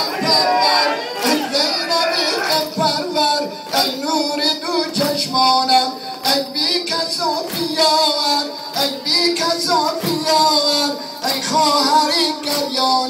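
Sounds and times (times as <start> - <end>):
person singing a lament: 0.0 - 13.0
rhythmic chest-beating strikes: 0.0 - 13.0.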